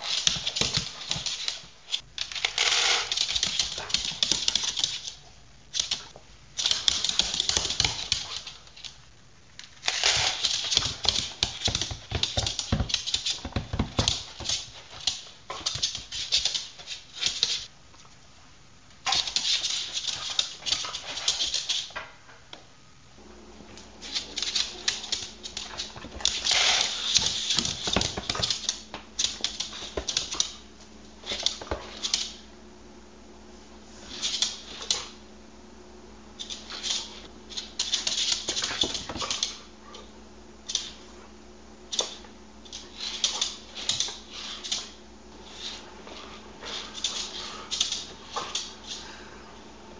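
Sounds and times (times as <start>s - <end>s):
low steady hum: 0.0s - 49.9s
dog claws tapping on wooden floor: 10.0s - 17.6s, 24.1s - 30.6s.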